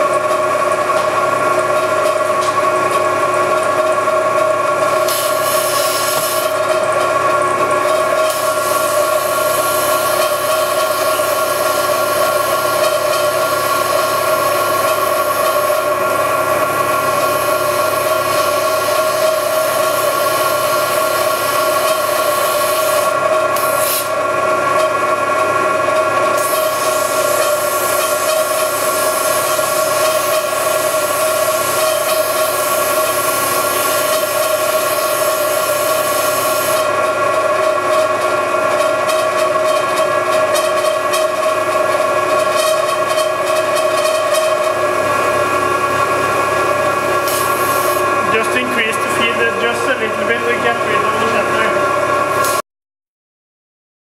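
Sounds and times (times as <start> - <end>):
milling machine whine: 0.0 - 52.6
compressed air blow gun hiss: 32.2 - 36.8, 47.2 - 48.0.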